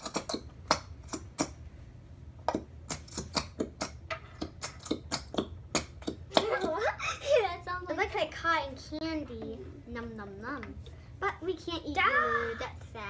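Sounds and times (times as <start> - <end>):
glue bottle clicking and crackling: 2.5 - 6.2.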